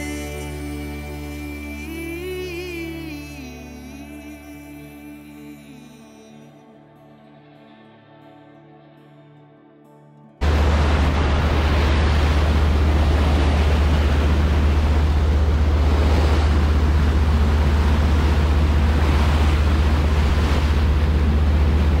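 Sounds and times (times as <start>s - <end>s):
boat low rumble: 10.4s - 22.0s
propeller wake churning: 10.4s - 22.0s
wind on microphone: 10.4s - 22.0s.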